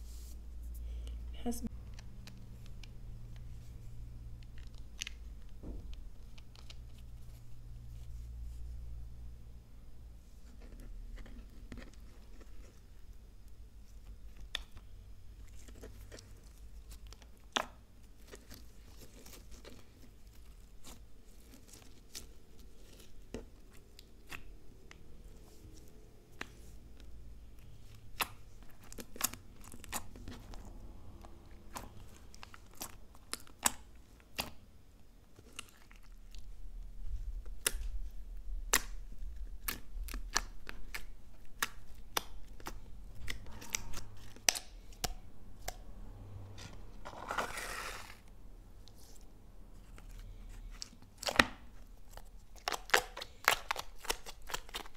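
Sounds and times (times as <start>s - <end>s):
slime kneading pops and crackles: 50.7s - 54.9s.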